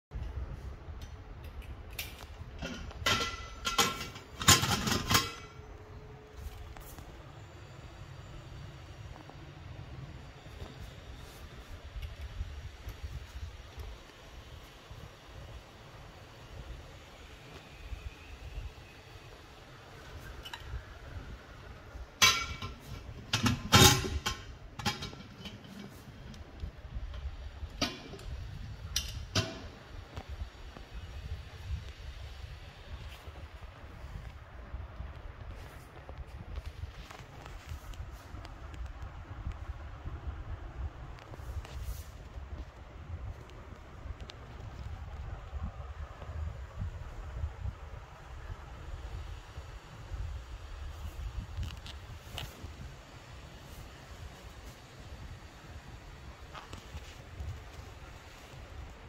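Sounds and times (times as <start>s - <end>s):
brass lid clanking and scraping: 2.6s - 5.6s
metal lid clanking: 2.6s - 5.6s, 22.2s - 26.1s.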